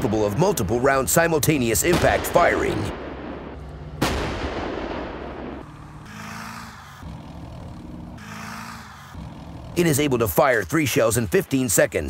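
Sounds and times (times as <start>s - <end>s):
tracked vehicle engine running: 0.0s - 12.0s
artillery gun blast: 1.8s - 5.6s.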